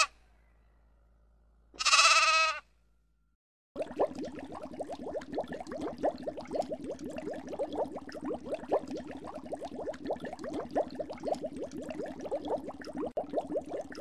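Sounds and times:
water bubbling and gurgling: 3.8 - 14.0.

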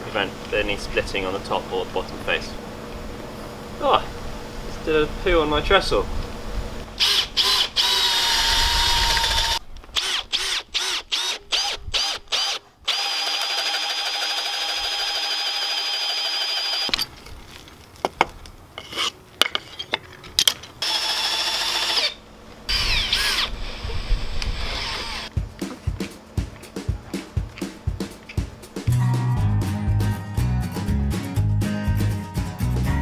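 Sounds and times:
cordless drill motor whine: 7.0 - 17.0, 20.8 - 25.3.

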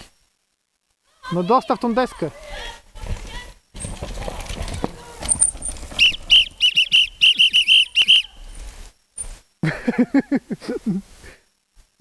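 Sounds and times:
whistle short sharp blasts: 6.0 - 8.4.

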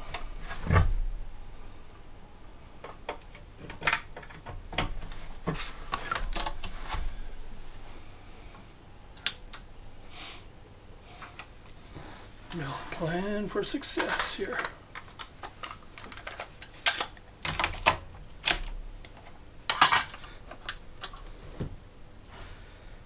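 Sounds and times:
cable plugs clicking and knocking: 2.8 - 6.8.

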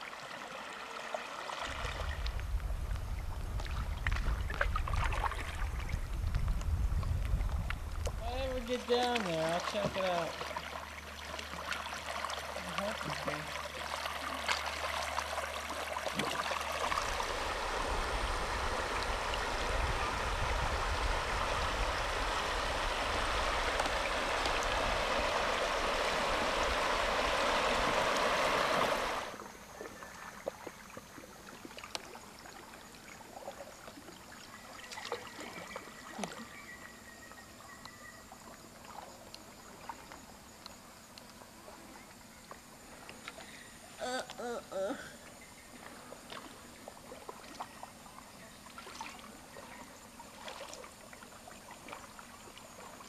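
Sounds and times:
water rushing: 0.0 - 37.0
faint splashes and clicks: 1.6 - 8.2, 30.1 - 36.4
low rumble: 1.7 - 8.8, 16.9 - 28.0.

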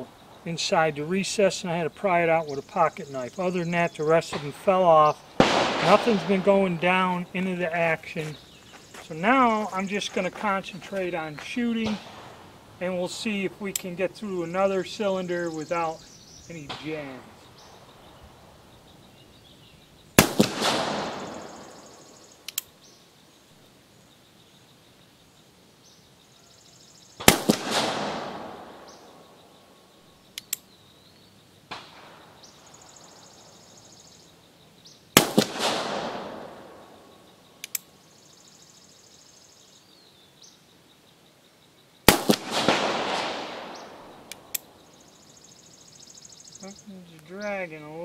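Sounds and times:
revolver shots with echo: 5.4 - 7.1, 20.2 - 21.8, 27.2 - 29.0, 35.2 - 36.8, 42.1 - 44.5.

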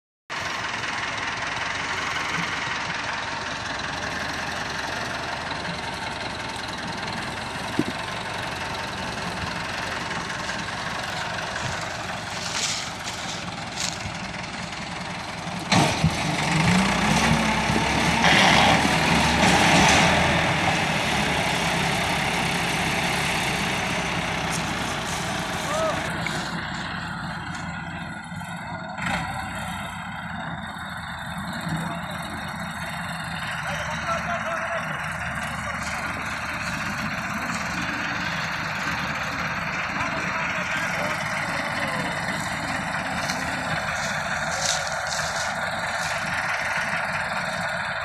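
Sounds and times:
tractor diesel engines running: 0.3 - 48.0
engine revving hard: 15.7 - 26.6.

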